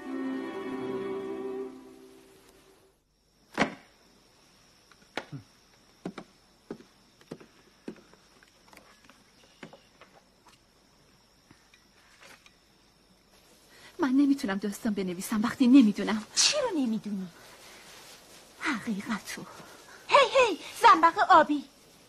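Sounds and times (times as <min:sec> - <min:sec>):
faint high whine: 0:00.0 - 0:03.4
light knocks and taps: 0:06.0 - 0:08.2.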